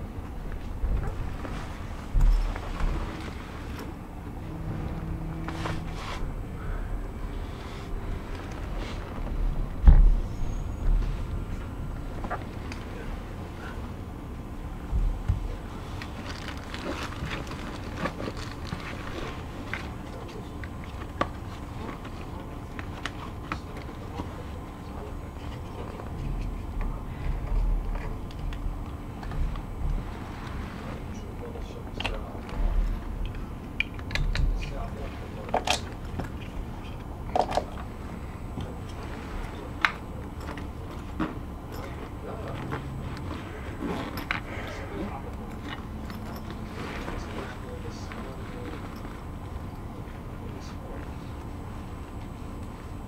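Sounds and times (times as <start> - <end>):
train carriage hum: 0.0 - 53.0.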